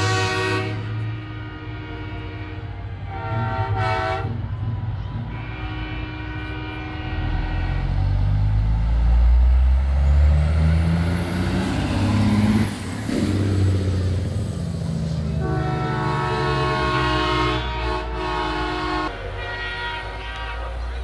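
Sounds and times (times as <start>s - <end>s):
truck air horn chord: 0.0s - 4.4s, 5.2s - 8.3s, 15.2s - 21.0s
diesel truck engine passing: 6.9s - 21.0s.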